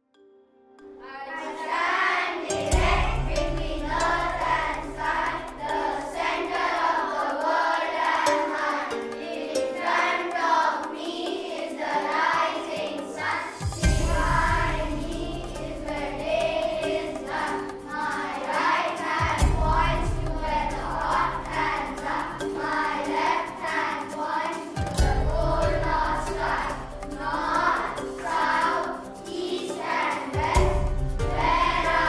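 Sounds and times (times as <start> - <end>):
children's choir singing: 1.0 - 32.0
deep bass: 2.8 - 5.4, 13.8 - 16.2, 19.4 - 21.2.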